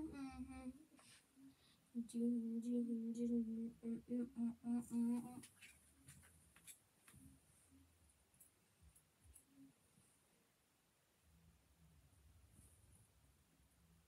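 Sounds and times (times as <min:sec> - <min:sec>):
boy humming a steady note: 0:00.0 - 0:00.9, 0:01.9 - 0:05.4.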